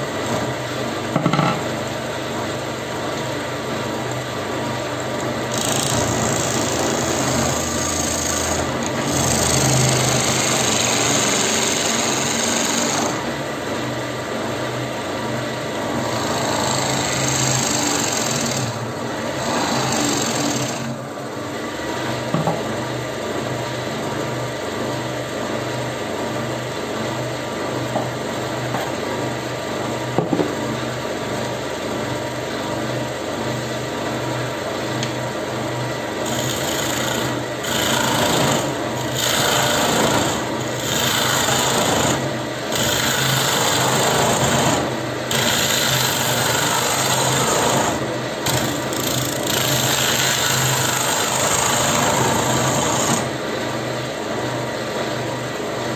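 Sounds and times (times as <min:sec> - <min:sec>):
wood lathe motor hum: 0:05.2 - 0:13.8, 0:15.8 - 0:22.5, 0:35.9 - 0:53.6
turning tool cutting wood: 0:05.4 - 0:13.3, 0:16.0 - 0:21.0, 0:36.1 - 0:53.4.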